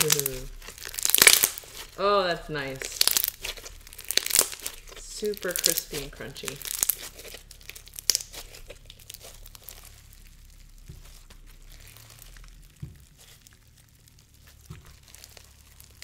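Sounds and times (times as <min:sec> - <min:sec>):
slime pops: 0:00.0 - 0:01.9
slime crackling and crunching: 0:00.0 - 0:16.0.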